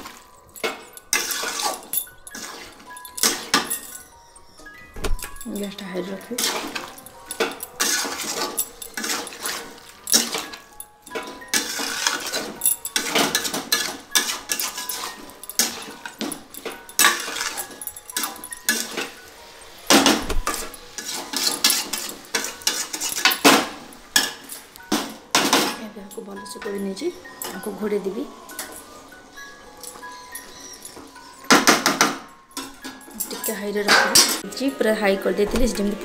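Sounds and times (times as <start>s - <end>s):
metal spatula scraping a pan: 0.0s - 3.7s, 5.7s - 25.6s.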